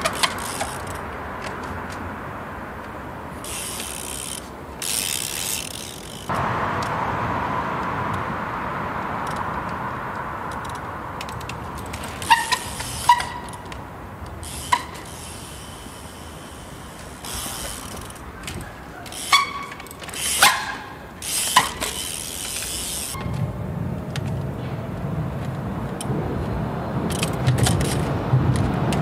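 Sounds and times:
bike freewheel hub ratcheting: 0.0 - 2.0, 3.4 - 6.9, 9.2 - 23.2, 27.1 - 29.0.

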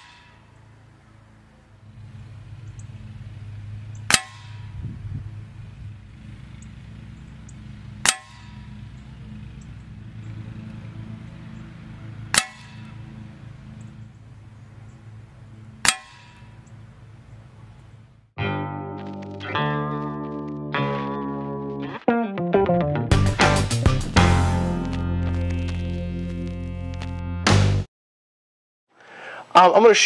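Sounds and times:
low hum: 0.0 - 21.9
air rifle shots: 8.0 - 8.8.

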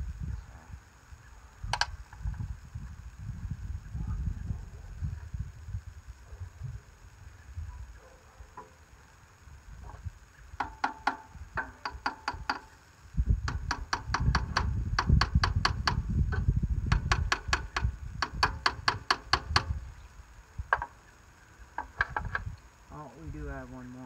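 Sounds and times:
low rumble: 0.0 - 8.0
ratchet wrench clicking: 10.6 - 12.8, 13.4 - 19.8.

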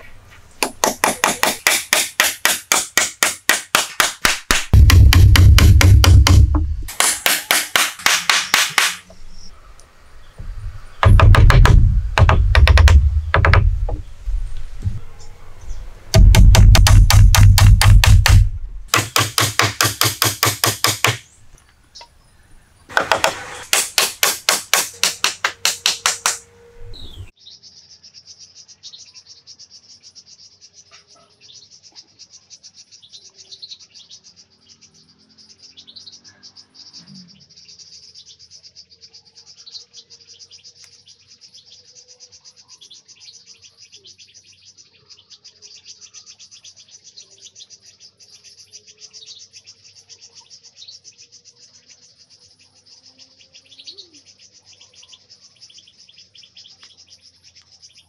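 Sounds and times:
hammer hitting nail into wood: 0.6 - 9.1, 11.0 - 13.7, 16.2 - 21.2, 22.9 - 26.4
bird chirps: 8.4 - 18.4, 24.9 - 58.0.

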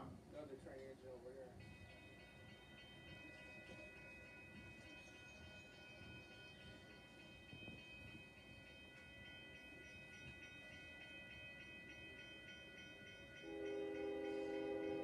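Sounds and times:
railroad crossing bell ringing: 1.5 - 15.0
train horn chord: 13.4 - 15.0.

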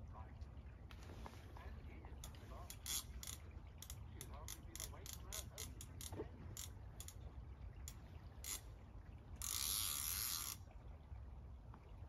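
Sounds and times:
fishing reel ratchet clicking: 2.2 - 7.2, 8.4 - 8.6, 9.4 - 10.6
fishing reel ratchet buzzing: 2.7 - 7.2, 8.4 - 8.6, 9.4 - 10.6.

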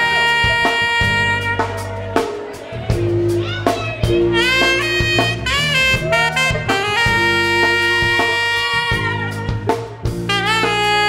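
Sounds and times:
live band playing: 0.0 - 11.0
tenor saxophone: 0.0 - 11.0.

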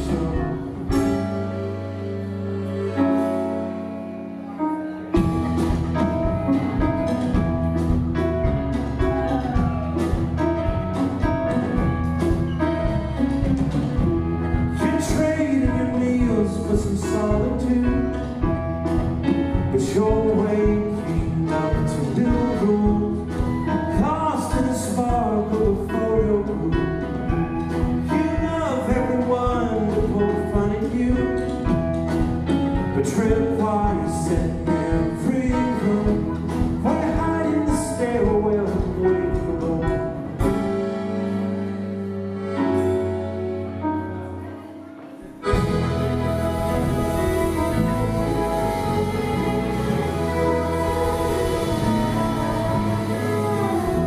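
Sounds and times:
person singing: 0.0 - 1.7, 8.8 - 11.9, 12.6 - 31.8, 32.8 - 40.6, 45.4 - 54.0
drum kit: 0.0 - 3.8, 5.0 - 41.8, 45.2 - 54.0
keyboard: 0.0 - 54.0
live rock band: 0.0 - 54.0.

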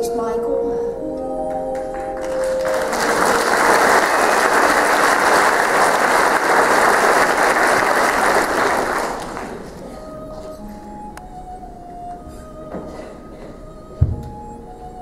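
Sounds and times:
audience applauding: 1.7 - 9.8.

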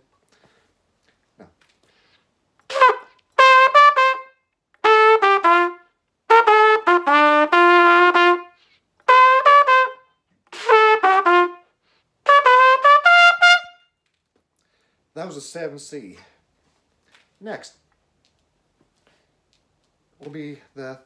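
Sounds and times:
trumpet playing quick tongued notes: 2.7 - 11.6, 12.2 - 13.8.

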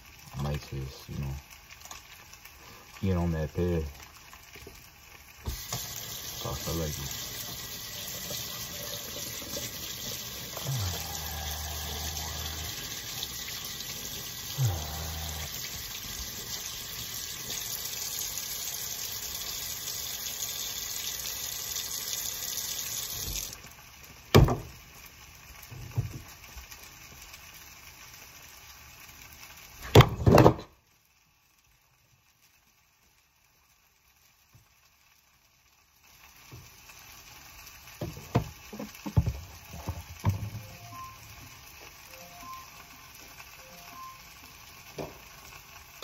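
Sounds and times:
faucet running into sink: 5.4 - 23.6, 38.0 - 40.8.

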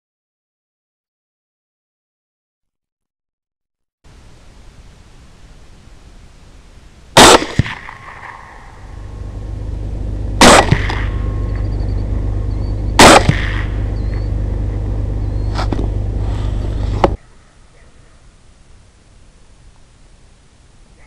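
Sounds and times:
steady low rumble: 4.1 - 21.0
rifle shots: 7.2 - 8.9, 10.4 - 11.3, 13.0 - 13.8.

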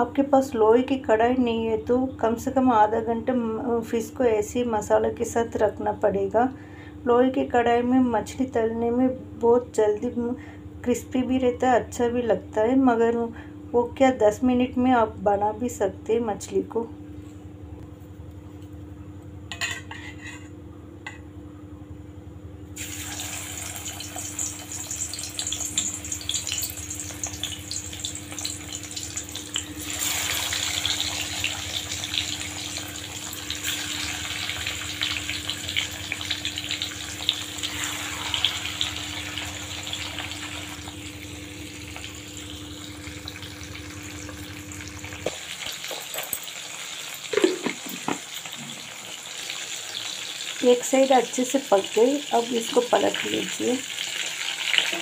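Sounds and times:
fish sizzling in hot oil: 22.8 - 55.0.

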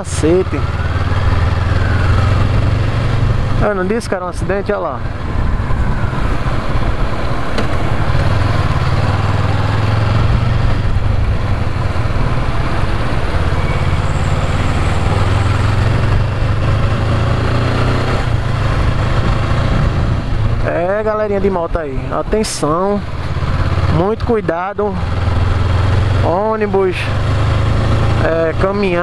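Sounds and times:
wind and road noise: 0.0 - 29.0
motorcycle engine running: 22.3 - 29.0.

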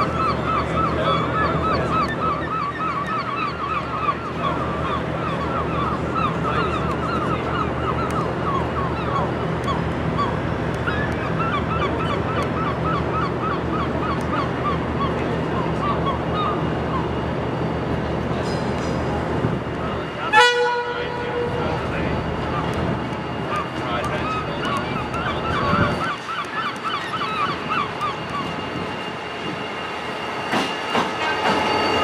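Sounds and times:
locomotive engine humming: 0.0 - 32.0
train wheels squealing: 21.1 - 32.0.

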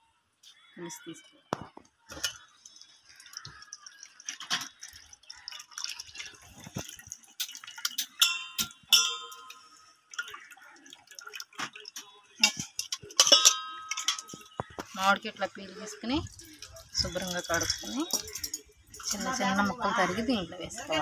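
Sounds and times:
water dripping and splashing: 1.5 - 21.0
hands squelching wet food: 2.1 - 21.0
steel clinks: 8.1 - 9.6.

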